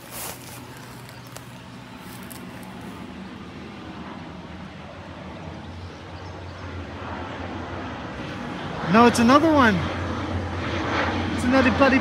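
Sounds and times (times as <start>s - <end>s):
grass rustling: 0.0s - 3.5s
aircraft engine drone: 0.0s - 12.0s.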